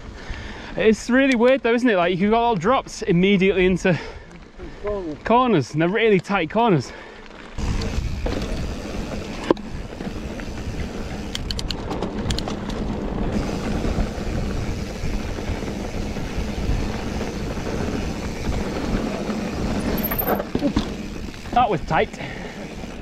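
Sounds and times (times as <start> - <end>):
tyres rolling over pebbles: 2.6 - 23.0
wind rumble on microphone: 7.6 - 21.5.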